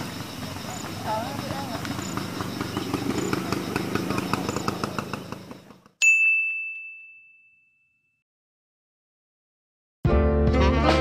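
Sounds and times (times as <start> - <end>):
bright ding: 6.0 - 8.2.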